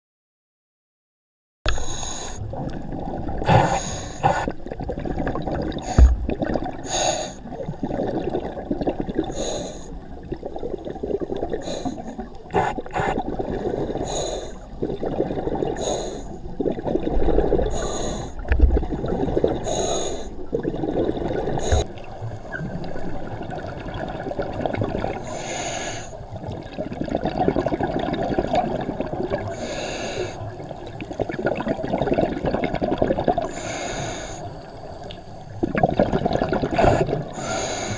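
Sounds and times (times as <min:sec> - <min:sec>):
diver inhaling through regulator: 0:01.7 - 0:02.4, 0:03.4 - 0:04.6, 0:06.8 - 0:07.4, 0:09.3 - 0:10.0, 0:11.6 - 0:14.7, 0:15.8 - 0:16.4, 0:17.5 - 0:18.5, 0:19.6 - 0:20.4, 0:21.6 - 0:21.9, 0:25.2 - 0:26.2, 0:29.5 - 0:30.4, 0:33.4 - 0:34.6, 0:36.7 - 0:37.9
bubbling exhalation: 0:35.6 - 0:37.6.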